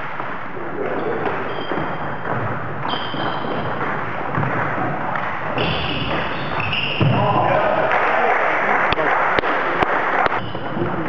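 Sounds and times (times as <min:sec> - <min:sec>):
sports hall hum: 0:00.0 - 0:11.0
shoes squeaking on floor: 0:00.9 - 0:04.3, 0:05.5 - 0:07.4, 0:10.3 - 0:11.0.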